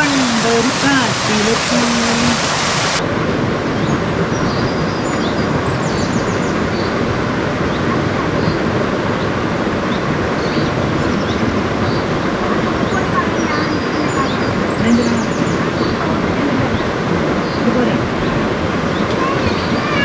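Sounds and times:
stream rushing: 0:00.0 - 0:20.0
faint high bird chirps: 0:19.0 - 0:20.0.

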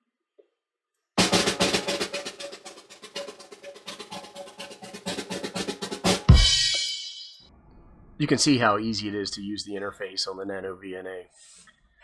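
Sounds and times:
music with snare and bass drums: 0:01.2 - 0:07.3.

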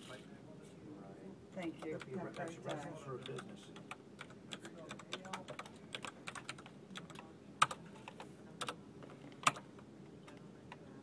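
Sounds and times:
computer keyboard typing: 0:01.8 - 0:08.8, 0:09.4 - 0:09.7.

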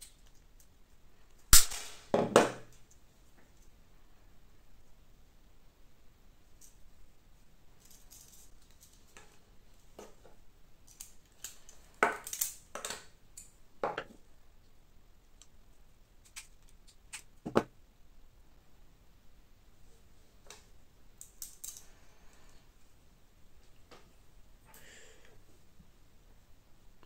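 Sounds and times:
plastic parts clicking: 0:10.9 - 0:13.5.

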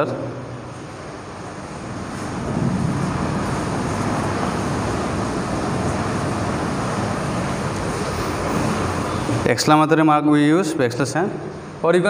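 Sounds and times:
rushing rumbling background noise: 0:00.0 - 0:11.9.

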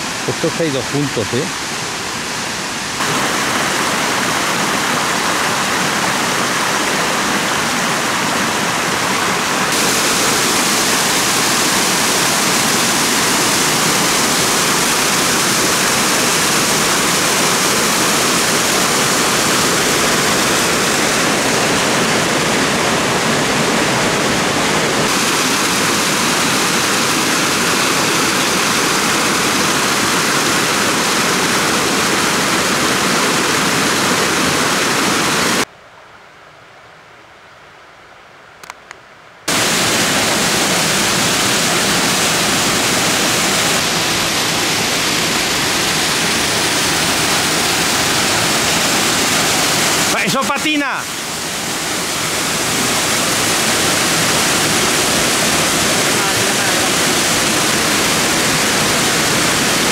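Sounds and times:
waterfall rushing into pool: 0:00.0 - 0:35.7, 0:39.5 - 0:59.9.

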